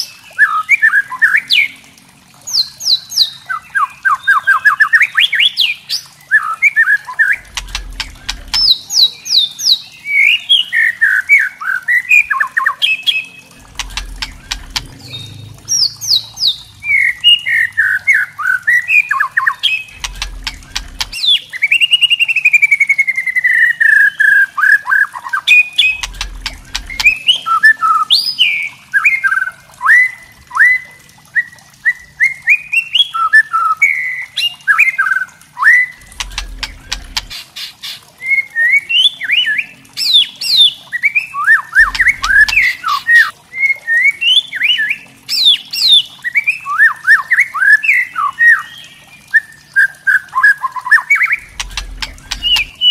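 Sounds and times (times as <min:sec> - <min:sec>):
dry crackling bird rattles: 0:07.4 - 0:08.7, 0:19.9 - 0:21.2, 0:25.9 - 0:27.2, 0:36.0 - 0:37.7, 0:41.8 - 0:43.0, 0:51.4 - 0:52.9.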